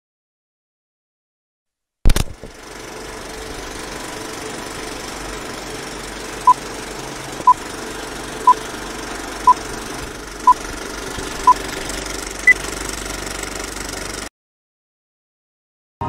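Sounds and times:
film projector clatter: 2.1s - 14.3s.

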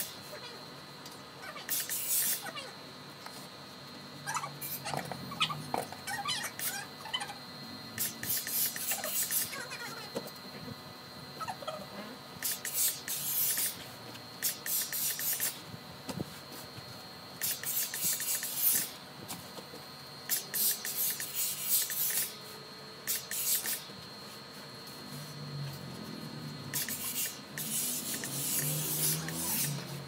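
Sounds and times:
steam iron hissing: 1.7s - 2.4s, 8.0s - 9.6s, 12.4s - 15.6s, 17.4s - 19.0s, 20.3s - 24.5s, 26.7s - 30.0s.

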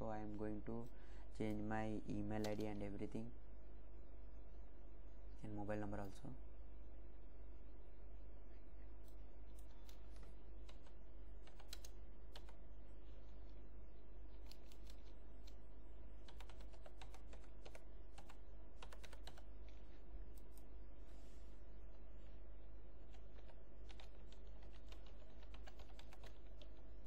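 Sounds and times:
steady low hum: 0.0s - 27.0s
keyboard keys clicking: 9.6s - 12.6s, 16.2s - 19.5s, 23.1s - 26.8s.

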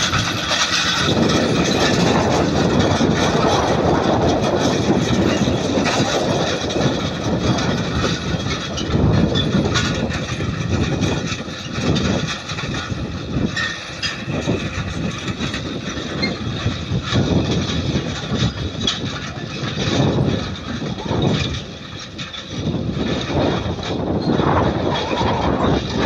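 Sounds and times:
harrow frame rattling: 0.0s - 26.0s
tractor diesel engine under load: 0.0s - 26.0s.

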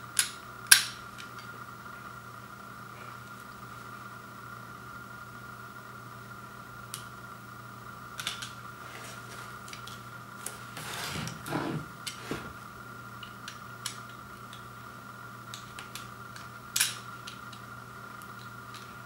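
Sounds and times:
steady low hum: 0.0s - 19.0s
knife cutting cardboard: 10.7s - 12.6s.

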